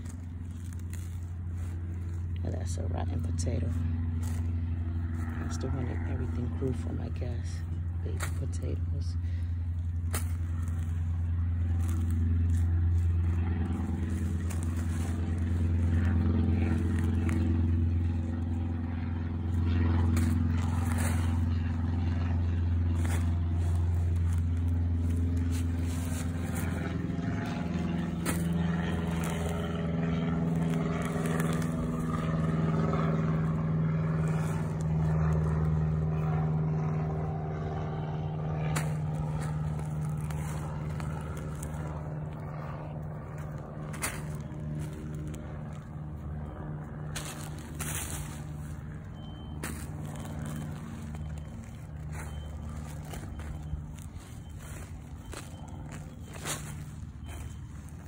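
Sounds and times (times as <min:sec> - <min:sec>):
low motor hum: 0:00.0 - 0:58.0
hands scraping through soil: 0:09.2 - 0:18.4, 0:38.7 - 0:46.0.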